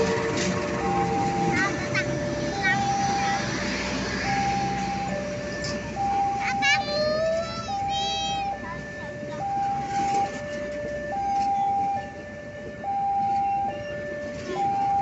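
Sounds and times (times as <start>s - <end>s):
train coaches rumbling past: 0.0s - 8.2s
level crossing two-tone alarm: 0.0s - 15.0s.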